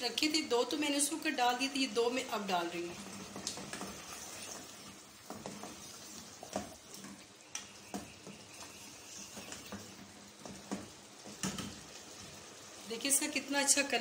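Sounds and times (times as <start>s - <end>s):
faint sizzle: 0.0s - 14.0s
wooden spatula scraping a pot: 3.0s - 7.2s, 7.8s - 12.4s.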